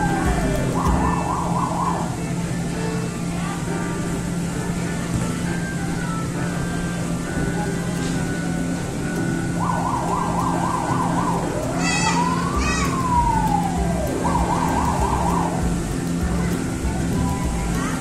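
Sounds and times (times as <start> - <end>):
electronic siren warbling and wailing: 0.0 - 2.6, 9.4 - 16.2
steady low hum: 0.0 - 18.0.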